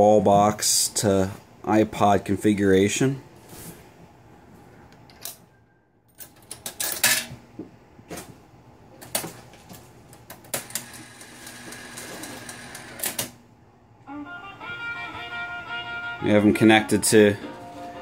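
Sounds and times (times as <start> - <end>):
coin rattling through mechanism: 6.1 - 7.3
mechanical whirr: 10.6 - 13.4.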